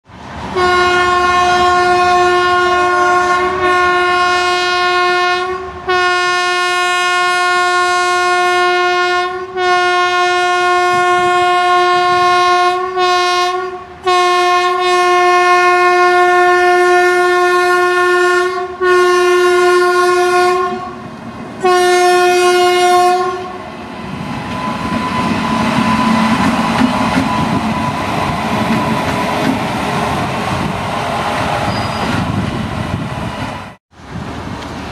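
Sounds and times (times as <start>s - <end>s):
passing train running noise: 0.0s - 34.9s
locomotive air horn blasts: 0.6s - 23.7s.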